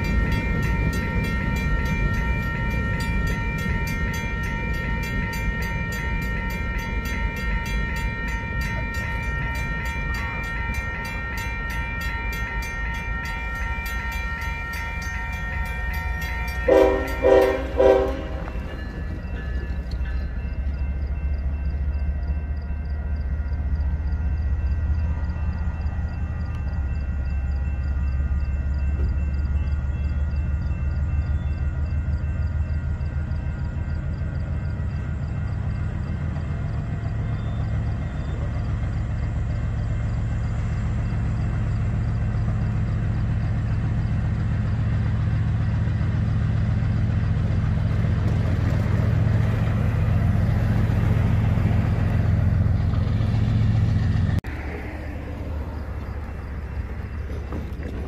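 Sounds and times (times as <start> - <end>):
railroad crossing bell ringing: 0.0 - 57.8
locomotive horn blasts: 16.5 - 18.7.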